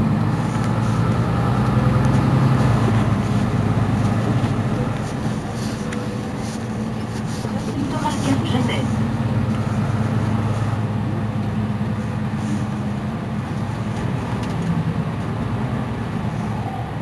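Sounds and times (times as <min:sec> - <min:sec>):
bus engine idling: 0:00.0 - 0:17.0.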